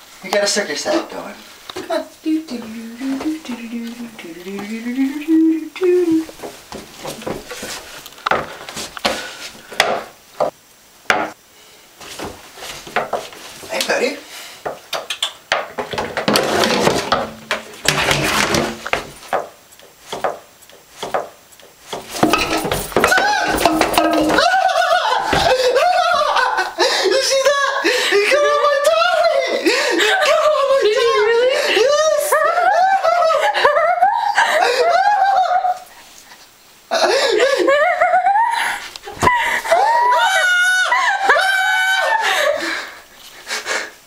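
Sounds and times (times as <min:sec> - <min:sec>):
plunger handle knocking on bathtub: 0:22.2 - 0:24.5
man giggling: 0:23.0 - 0:28.6, 0:36.9 - 0:39.7.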